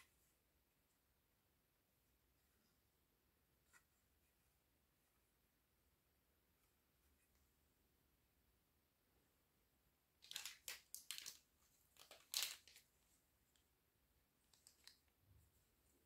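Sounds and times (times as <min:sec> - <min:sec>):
plastic toys rustling and clattering: 0:10.2 - 0:13.0.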